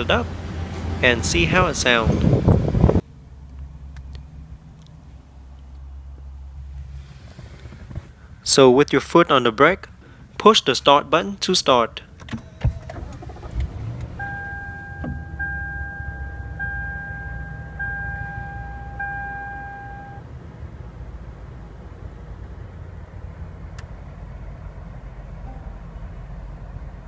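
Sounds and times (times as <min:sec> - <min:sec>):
car engine starting and idling: 0:12.0 - 0:27.0
car electronic chime: 0:14.2 - 0:20.2, 0:25.4 - 0:25.8.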